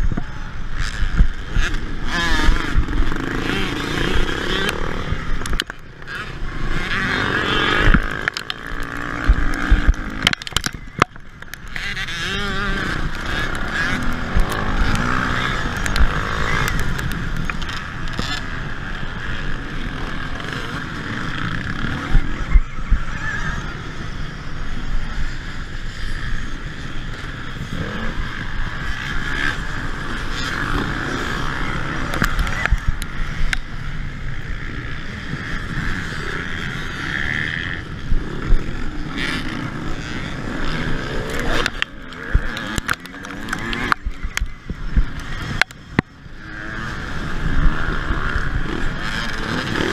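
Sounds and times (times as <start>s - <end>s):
dirt bikes revving: 0.0s - 49.9s
wind: 0.0s - 49.9s
tyres on dirt: 35.4s - 49.9s.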